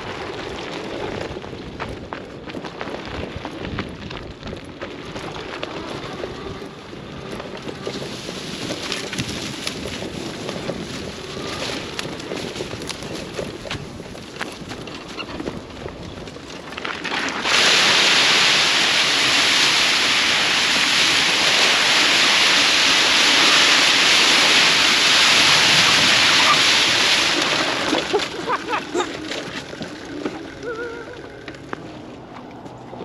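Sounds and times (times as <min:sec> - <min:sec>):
splashing water rushing: 0:17.3 - 0:29.7.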